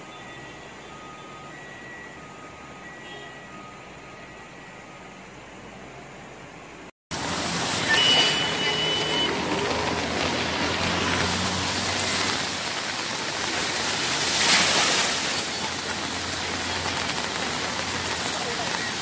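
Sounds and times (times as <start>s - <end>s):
heavy rain pouring: 6.6s - 19.0s.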